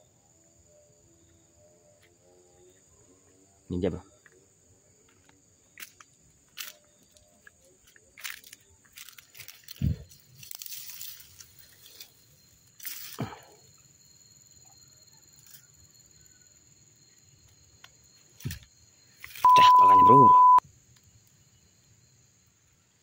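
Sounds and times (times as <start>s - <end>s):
footsteps rustling through dry grass: 8.2s - 12.2s.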